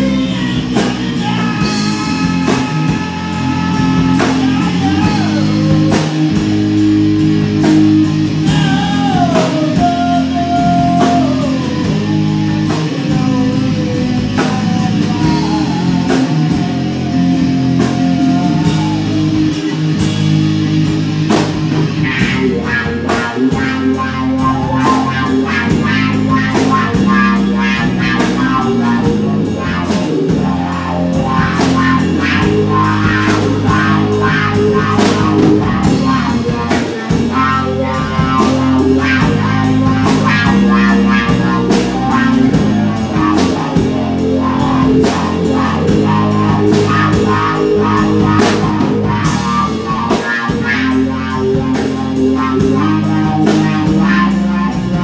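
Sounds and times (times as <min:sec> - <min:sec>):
bass guitar: 0:00.0 - 0:55.0
drum kit beat: 0:00.0 - 0:55.0
electric guitar: 0:00.0 - 0:55.0
sliding melody line: 0:22.0 - 0:55.0.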